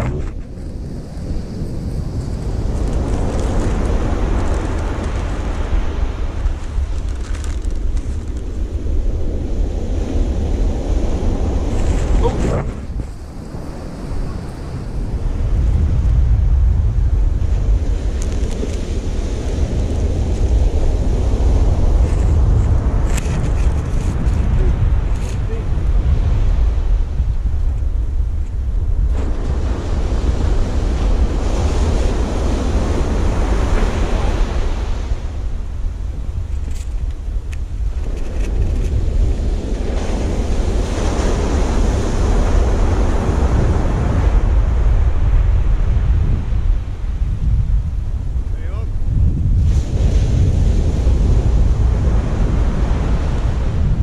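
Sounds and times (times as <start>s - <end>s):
ocean surf on beach: 0.0s - 54.0s
wind buffeting microphone: 0.0s - 54.0s.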